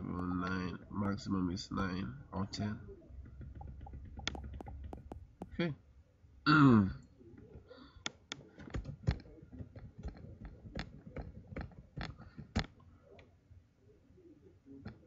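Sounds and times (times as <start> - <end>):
keyboard typing clicks: 3.2 - 5.6.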